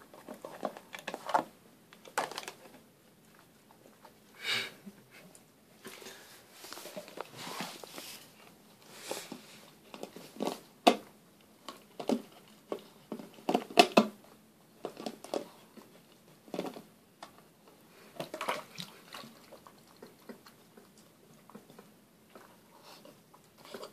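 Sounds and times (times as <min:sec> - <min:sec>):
puppy chewing plastic bottle: 0:11.7 - 0:14.2, 0:14.8 - 0:16.9.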